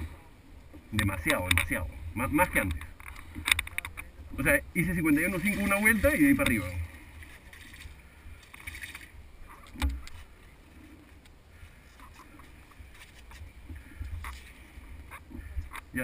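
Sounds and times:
faint clicks: 2.6s - 4.1s.

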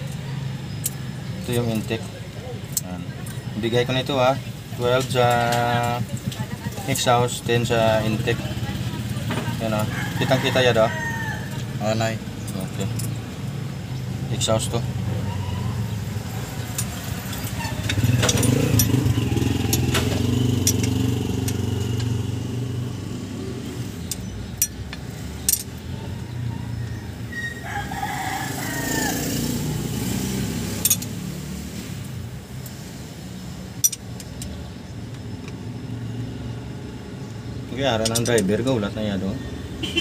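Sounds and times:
rooster crowing: 9.5s - 11.9s, 25.9s - 30.7s
vehicle engine running: 11.4s - 39.2s
hand tools clicking: 16.6s - 22.2s, 24.0s - 25.9s, 30.7s - 31.2s, 33.8s - 34.6s, 38.0s - 38.7s.

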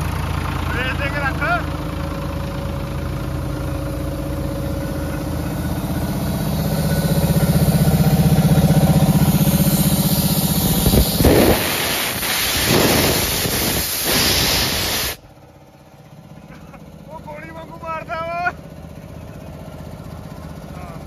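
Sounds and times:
diesel tractor engine running: 0.0s - 21.0s
compressed air hissing: 6.0s - 15.2s.

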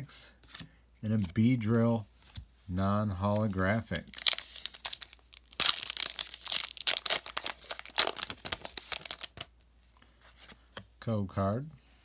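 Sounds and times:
foil wrapper tearing and crinkling: 3.9s - 9.4s.

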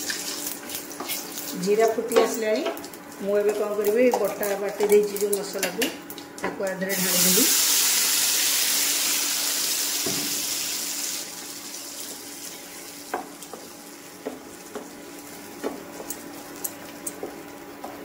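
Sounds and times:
paste sizzling in hot oil: 6.9s - 15.6s.

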